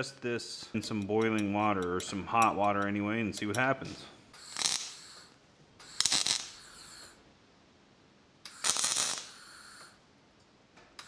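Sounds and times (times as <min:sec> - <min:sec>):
welding arc crackling: 0:04.4 - 0:07.2, 0:08.4 - 0:10.0.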